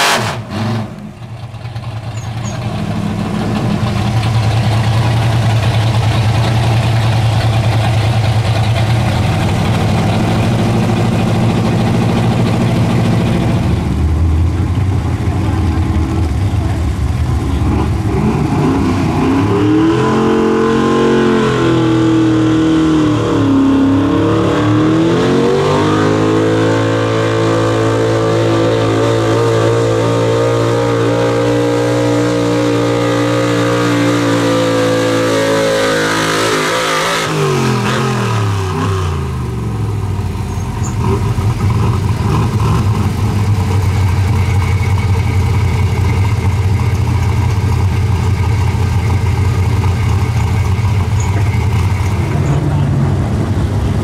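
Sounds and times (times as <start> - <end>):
truck engine at high revs: 0.0 - 54.0
engine rough idle: 1.0 - 18.0, 39.7 - 53.8.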